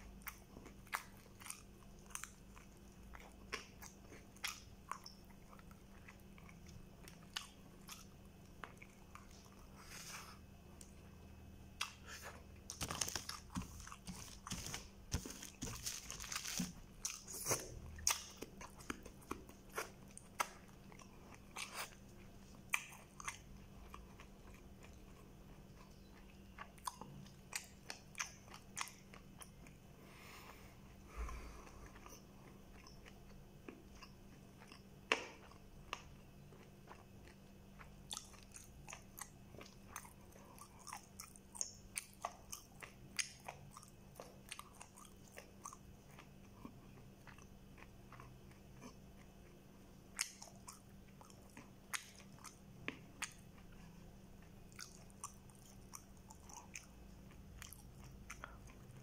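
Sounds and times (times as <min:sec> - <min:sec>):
person chewing food: 0:00.0 - 0:59.0
paper wrapping rustling: 0:12.7 - 0:16.8.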